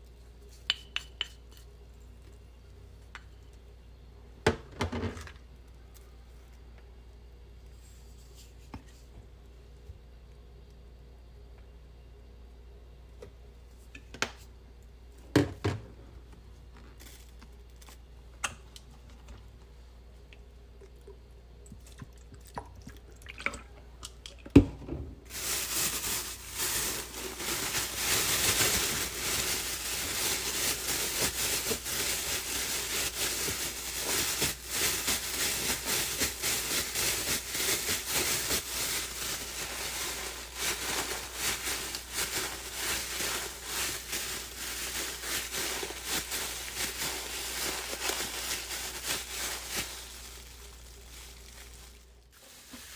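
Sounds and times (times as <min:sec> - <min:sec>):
plastic bag crinkling: 0:25.3 - 0:52.9.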